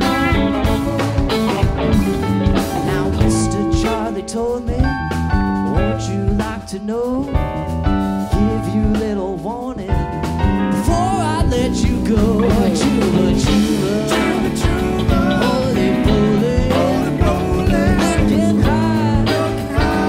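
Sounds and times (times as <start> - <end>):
electric guitar lead with bends: 0.0 - 8.5, 10.0 - 20.0
bass guitar: 0.0 - 20.0
drums: 0.0 - 20.0
keyboard: 0.0 - 20.0.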